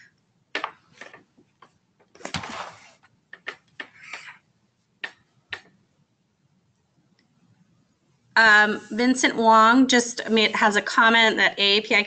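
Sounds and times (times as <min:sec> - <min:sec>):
soft hisses: 0:02.2 - 0:03.1.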